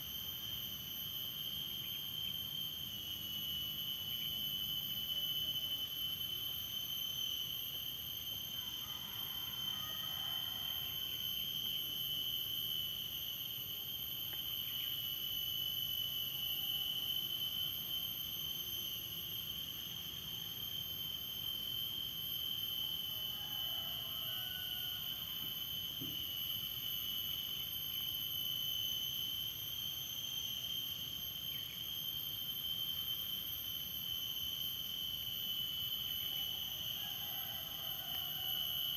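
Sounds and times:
high-pitched insect drone: 0:00.0 - 0:38.9.

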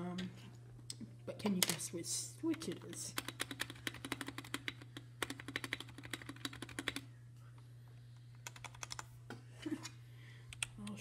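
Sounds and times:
mechanical keyboard typing: 0:02.5 - 0:07.0, 0:08.4 - 0:09.1.

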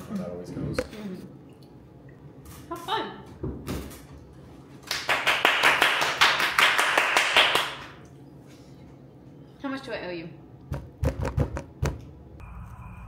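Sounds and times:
rapid hand clapping: 0:04.8 - 0:08.0.

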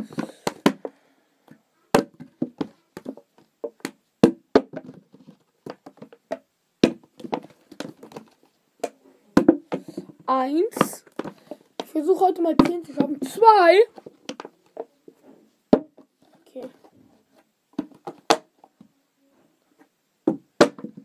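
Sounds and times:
plastic bottle landing knocks: 0:01.9 - 0:03.2, 0:04.2 - 0:08.3, 0:09.4 - 0:10.1, 0:20.2 - 0:21.0.

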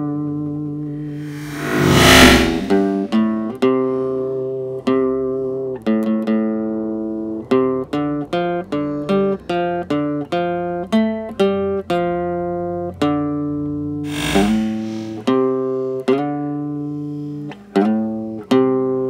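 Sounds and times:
slow plucked guitar melody: 0:03.2 - 0:14.0, 0:15.2 - 0:19.0.

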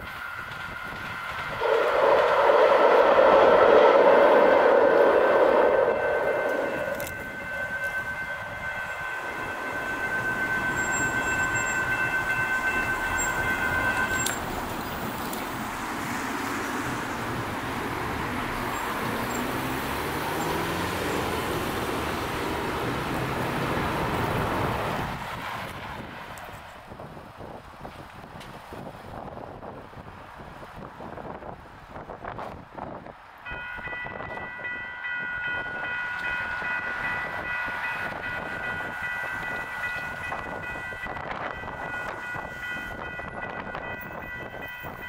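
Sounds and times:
railroad crossing bells ringing: 0:00.0 - 0:15.7, 0:33.4 - 0:45.0
road traffic: 0:00.0 - 0:45.0
train passing: 0:00.0 - 0:45.0
vehicle accelerating: 0:16.2 - 0:25.0.

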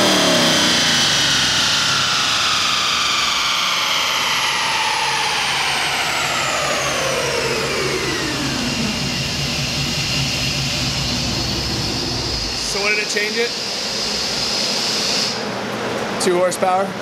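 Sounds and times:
car engine revs falling to idle: 0:00.0 - 0:12.8.

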